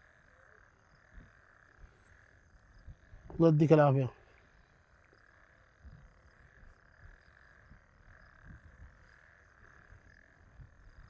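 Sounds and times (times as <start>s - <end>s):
frogs calling: 0.0s - 11.0s.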